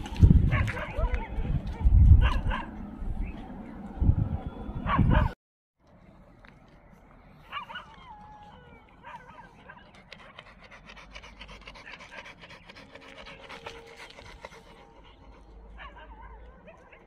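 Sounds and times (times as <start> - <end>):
dog panting: 9.5 - 15.9.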